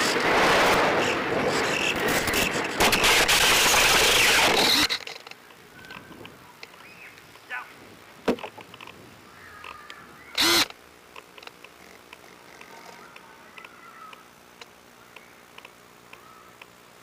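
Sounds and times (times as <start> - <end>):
loud burst of noise: 0.0 - 5.3, 10.3 - 11.1
faint chirps: 5.4 - 7.7, 12.3 - 16.7.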